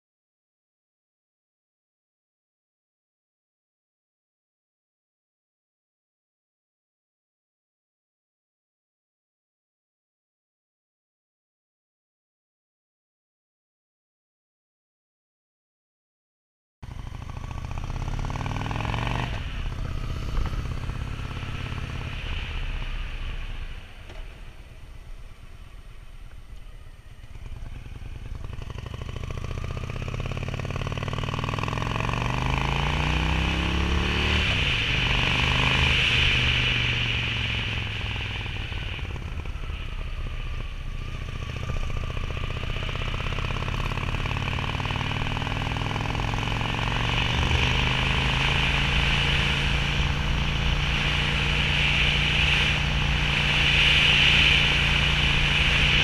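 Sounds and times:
motorcycle engine running: 0:16.8 - 0:56.0.

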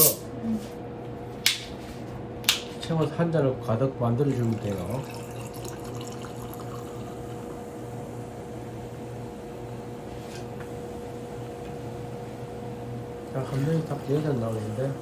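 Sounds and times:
liquid pouring into glass: 0:04.2 - 0:07.8.

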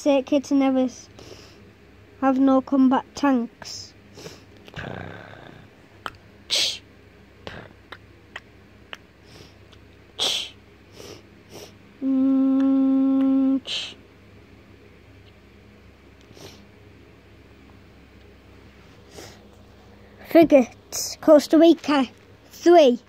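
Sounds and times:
person sniffing: 0:04.1 - 0:05.6, 0:06.5 - 0:06.8, 0:09.2 - 0:09.6, 0:10.2 - 0:11.8, 0:16.3 - 0:16.7, 0:19.0 - 0:19.4
person humming: 0:04.7 - 0:06.8, 0:07.4 - 0:09.4, 0:10.2 - 0:10.6, 0:11.5 - 0:14.0.

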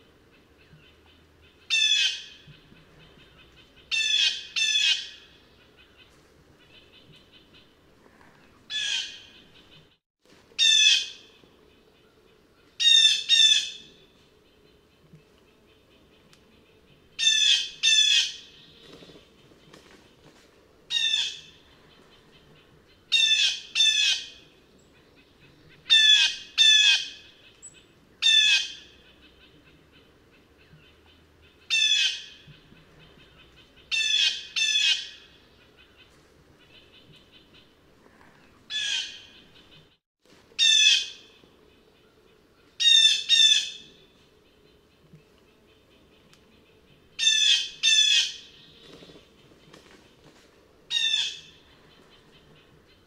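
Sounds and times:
blue jay harsh calls: 0:38.7 - 0:39.4.

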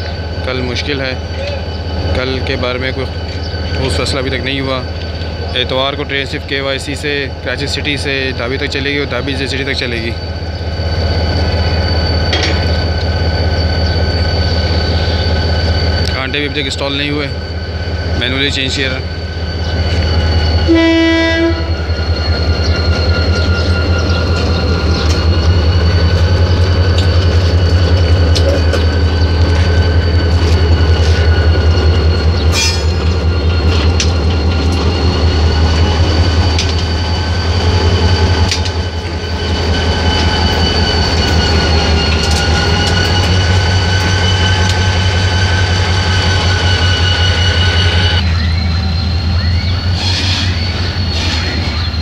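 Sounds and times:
diesel locomotive engine drone: 0:00.0 - 0:52.0
high whine: 0:08.0 - 0:52.0
locomotive horn blast: 0:20.6 - 0:21.9.

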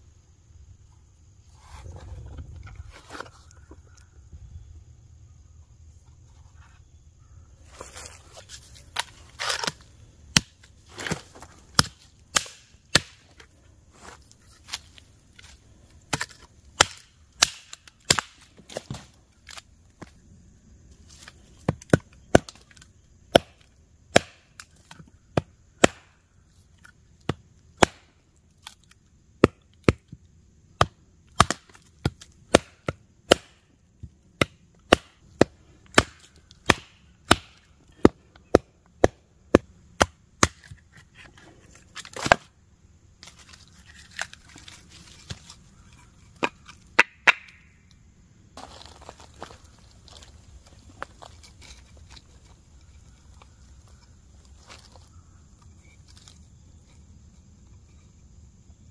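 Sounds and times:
log splitting: 0:07.7 - 0:20.2, 0:21.0 - 0:26.2, 0:26.8 - 0:42.6, 0:43.2 - 0:48.0, 0:48.6 - 0:57.0.

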